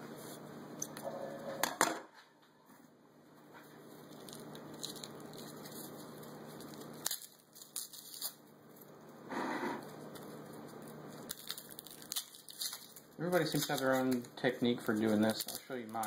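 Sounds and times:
garlic skins crackling: 3.8s - 9.0s, 9.8s - 16.0s.

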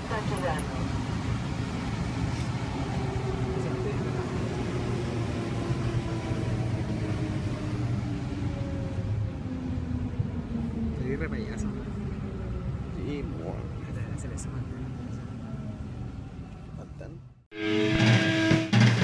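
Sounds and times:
train rumble: 0.0s - 19.0s
train motor whine: 17.6s - 19.0s.

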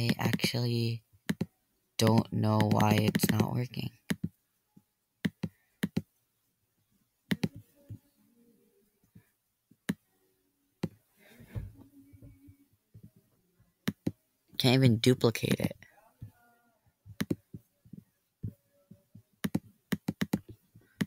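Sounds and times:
computer mouse clicking: 1.2s - 4.4s, 5.2s - 6.1s, 7.3s - 7.6s, 13.8s - 14.2s, 17.1s - 18.0s, 19.4s - 21.0s.

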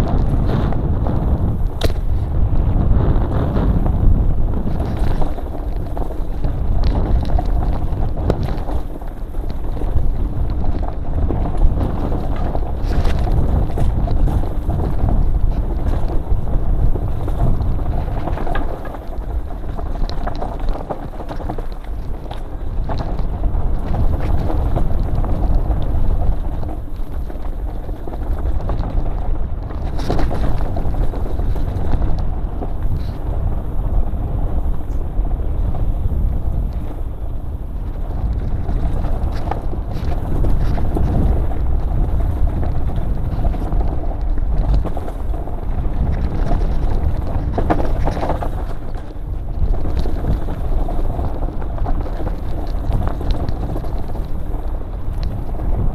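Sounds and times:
mountain bike rattling over rocks: 0.0s - 55.9s
wind on microphone: 0.0s - 55.9s.

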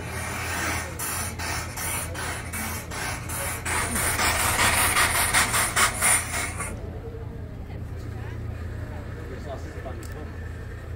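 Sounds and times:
paddle steamer swishing strokes: 0.0s - 6.8s
steady low hum: 0.0s - 10.9s.

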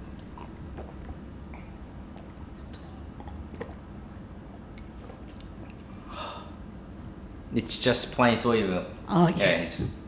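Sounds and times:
low kitchen hum: 0.0s - 10.0s.

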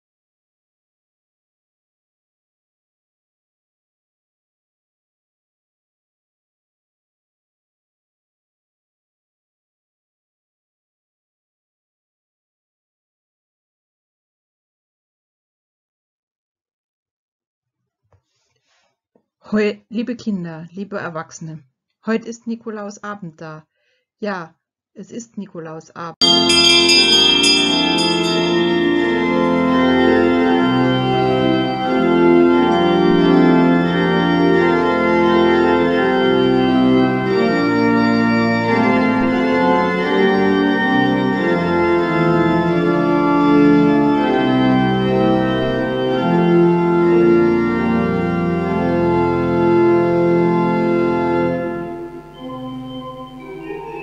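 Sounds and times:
organ playing sustained chords: 26.2s - 54.0s.

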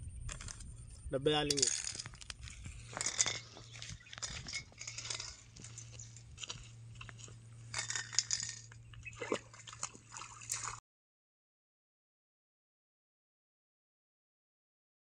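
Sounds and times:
rustling and crunching: 0.2s - 10.8s
light clinking of tins: 1.4s - 9.9s.

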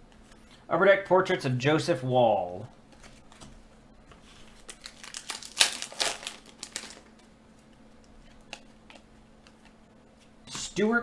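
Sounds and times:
trading cards rustling: 4.4s - 9.8s.

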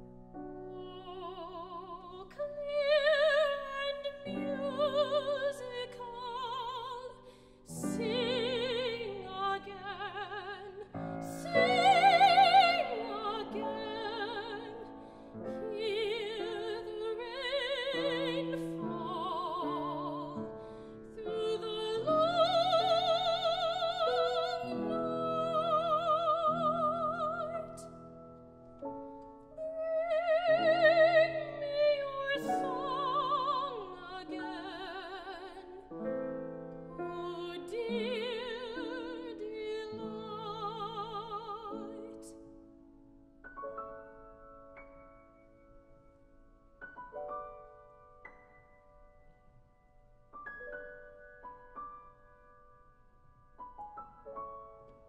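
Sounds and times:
grand piano: 0.0s - 55.0s
soprano singing with vibrato: 0.6s - 28.0s, 29.6s - 36.2s, 37.0s - 42.5s.

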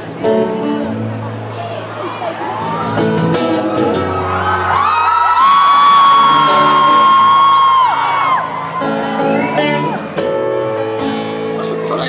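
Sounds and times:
acoustic guitar: 0.0s - 12.0s
audience screaming and whooping: 1.7s - 10.6s.

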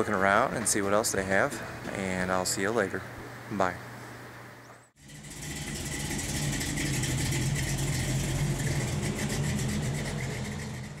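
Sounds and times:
engine idling: 5.0s - 11.0s.

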